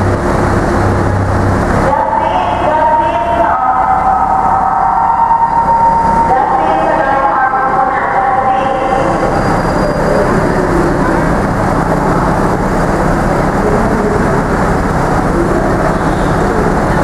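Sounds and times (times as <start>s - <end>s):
truck engine driving hydraulics: 9.0s - 17.0s.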